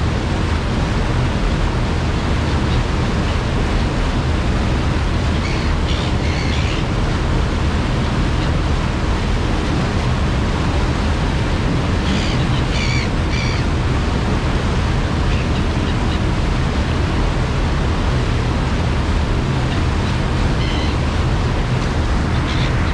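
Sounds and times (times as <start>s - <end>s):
low engine hum: 0.0s - 22.9s
rush of churning wake: 0.0s - 22.9s
gulls calling: 4.8s - 17.3s, 19.5s - 22.9s.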